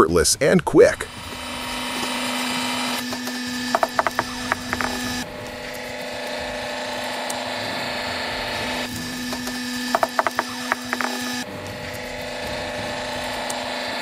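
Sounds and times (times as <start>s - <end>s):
log splitter hum: 0.0s - 14.0s
sharp mechanical clacks: 3.0s - 5.8s, 8.8s - 12.1s.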